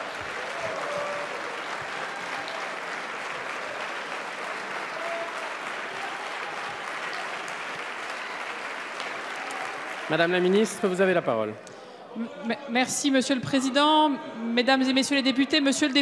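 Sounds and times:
crowd applauding: 0.0s - 11.4s.

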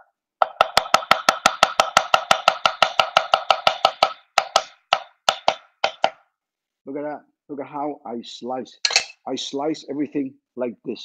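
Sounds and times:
cleaver chopping cabbage on wood: 0.4s - 6.2s.

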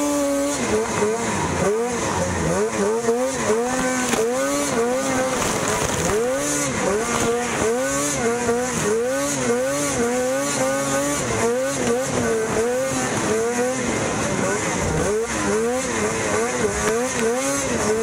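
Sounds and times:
snowmobile engine revving: 0.0s - 18.0s.

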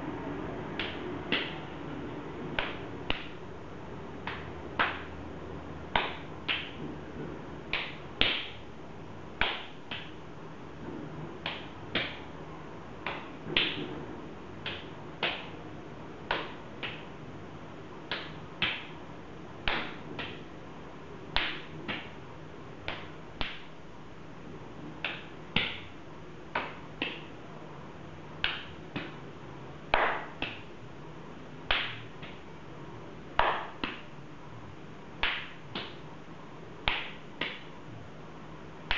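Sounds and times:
faint steady hum: 0.0s - 38.9s
open-hand face slaps: 0.8s - 1.6s, 4.2s - 5.2s, 5.9s - 6.8s, 7.7s - 8.6s, 9.4s - 10.2s, 11.4s - 12.3s, 13.0s - 13.9s, 14.6s - 15.6s, 16.3s - 17.1s, 18.1s - 19.0s, 19.6s - 20.5s, 21.4s - 22.2s, 22.8s - 23.7s, 25.0s - 27.3s, 28.4s - 29.2s, 29.9s - 30.7s, 31.7s - 32.4s, 33.4s - 34.1s, 35.2s - 36.0s, 36.8s - 37.7s.

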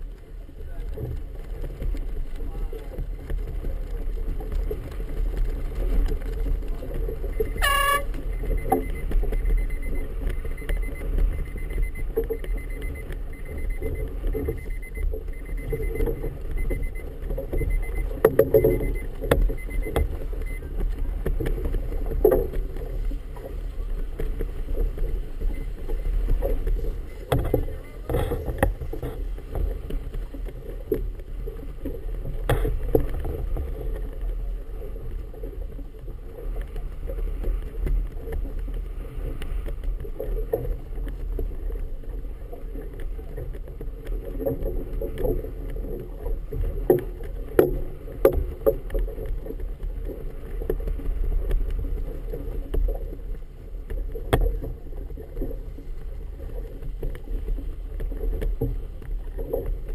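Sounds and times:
steady low rumble: 0.0s - 59.9s
water slapping a boat hull: 0.0s - 59.9s
brief shrill tone: 7.4s - 8.1s.

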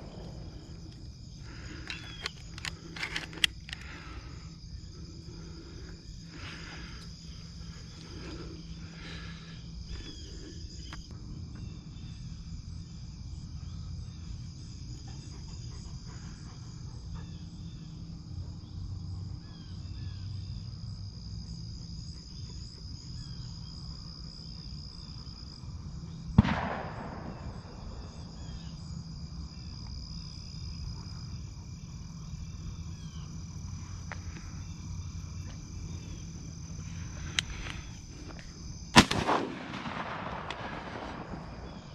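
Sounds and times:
insect chorus trilling: 0.0s - 41.9s
small chirps: 0.1s - 4.2s
shotgun shot: 26.4s - 28.3s, 39.0s - 41.9s.

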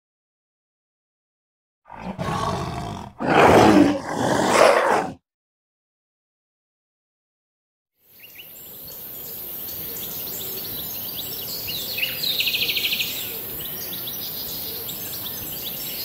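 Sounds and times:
small birds chirping: 8.0s - 16.0s
bird trill: 8.2s - 16.0s
steady high hiss: 8.2s - 16.0s.

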